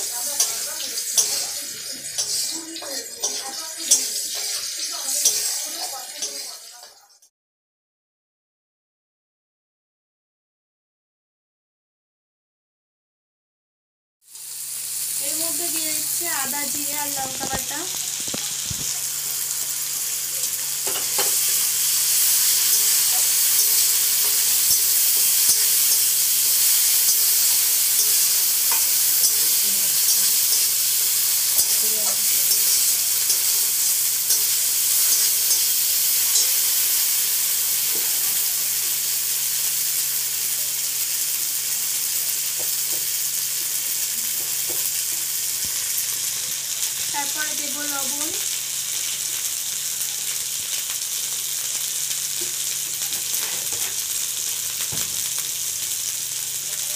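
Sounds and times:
spatula scraping metal pan: 0.0s - 7.2s, 20.8s - 36.8s
onions sizzling in hot oil: 0.0s - 7.3s, 14.2s - 56.9s.

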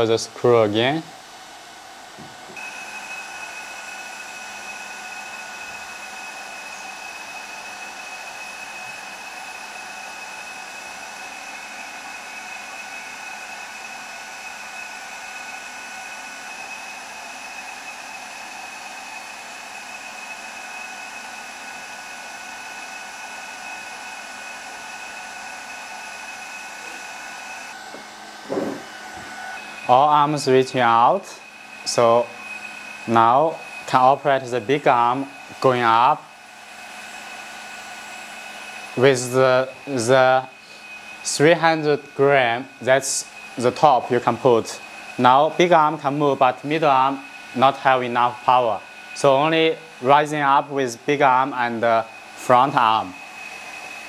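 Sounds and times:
hydraulic pump whining: 1.4s - 54.0s
hydraulic hiss: 23.3s - 37.2s, 38.1s - 54.0s.

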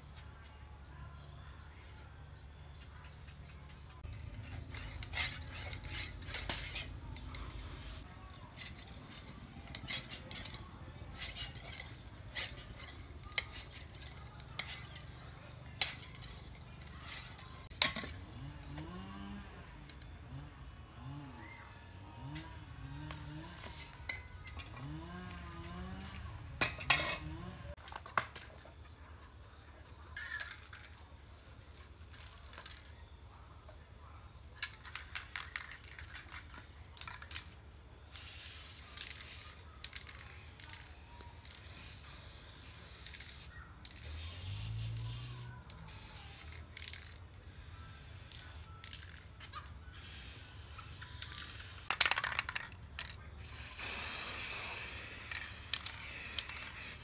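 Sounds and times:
aerosol spray hissing: 6.4s - 8.1s, 38.2s - 39.7s, 40.3s - 46.6s, 49.9s - 51.9s, 53.4s - 57.0s.

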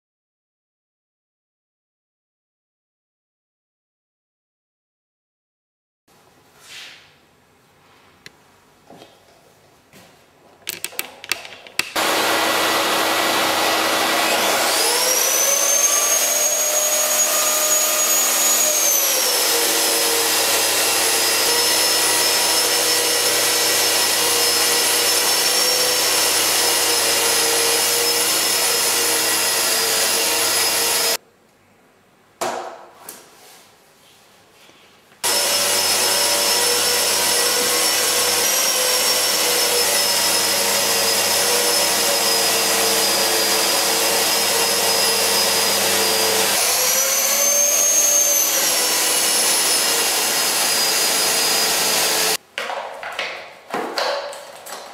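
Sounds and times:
dust extractor suction rushing: 12.0s - 31.2s, 35.3s - 52.4s
sander motor whining: 12.0s - 31.2s, 35.2s - 52.4s.

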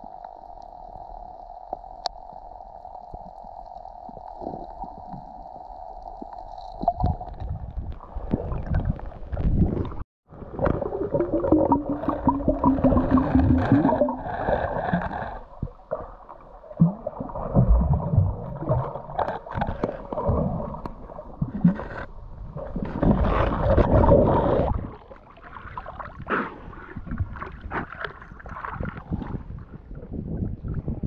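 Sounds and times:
underwater bubbling: 0.0s - 31.0s
rush of water: 6.8s - 21.9s
knocks underwater: 8.4s - 14.3s.

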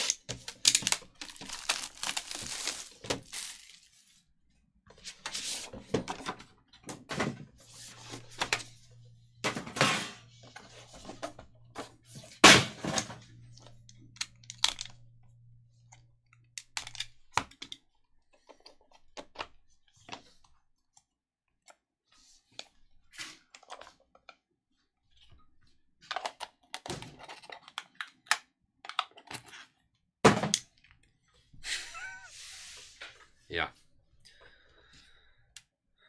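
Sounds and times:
cards and cardboard box handled: 0.0s - 4.0s.

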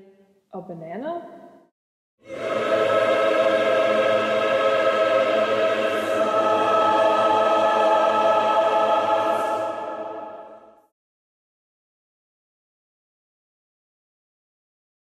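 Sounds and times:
sustained choral chord: 2.2s - 10.9s.

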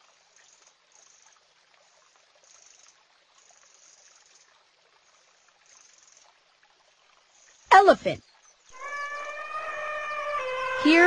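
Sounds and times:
high chirring: 8.8s - 11.0s.

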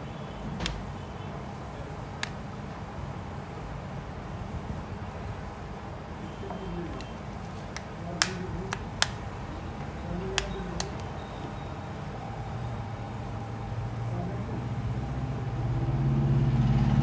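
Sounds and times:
sharp plastic clicks: 7.0s - 9.2s, 10.4s - 11.1s.

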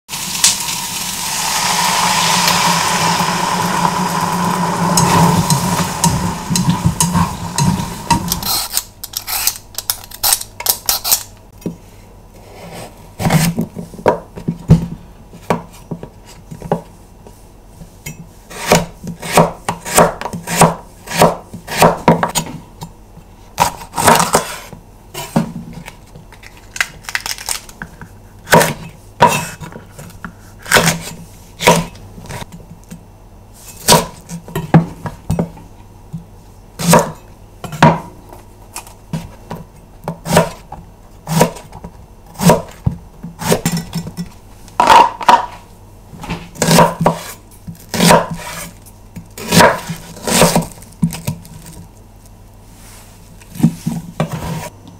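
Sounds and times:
knife chopping on wooden board: 18.5s - 22.5s, 28.5s - 29.7s, 46.6s - 48.7s, 49.4s - 51.3s.

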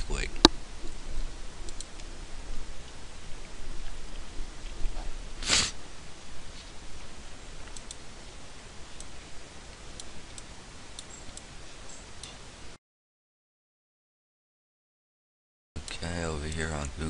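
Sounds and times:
low background hum: 0.0s - 12.8s, 15.8s - 17.0s
computer mouse clicks: 1.6s - 2.1s, 7.6s - 8.0s.

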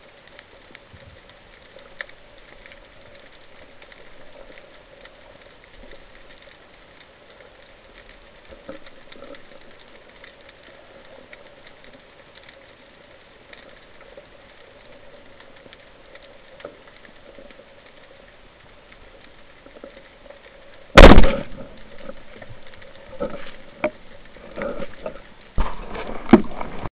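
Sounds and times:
faint underwater crackling: 0.0s - 26.9s
speargun firing crack: 21.0s - 21.6s.

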